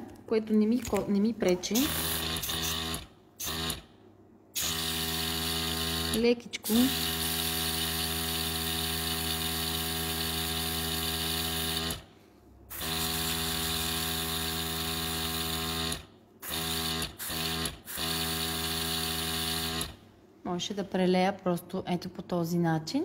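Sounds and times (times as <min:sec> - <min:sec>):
airbrush compressor humming: 0:01.6 - 0:04.0, 0:04.6 - 0:12.1, 0:12.7 - 0:20.0.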